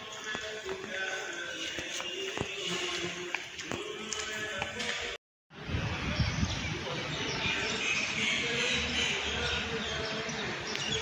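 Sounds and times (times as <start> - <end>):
wind buffeting microphone: 5.5 - 7.7.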